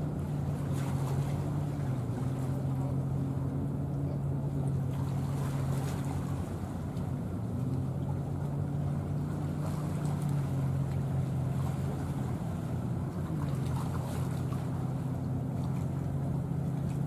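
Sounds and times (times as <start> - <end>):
ship engines droning: 0.0 - 17.0.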